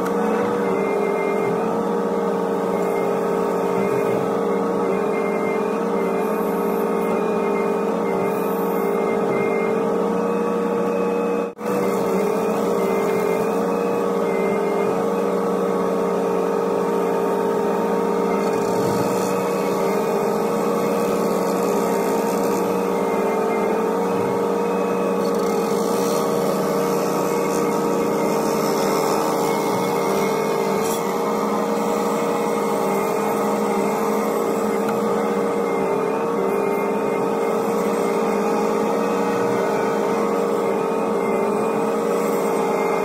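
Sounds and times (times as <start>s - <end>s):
excavator engine and hydraulics whine: 0.0s - 43.0s.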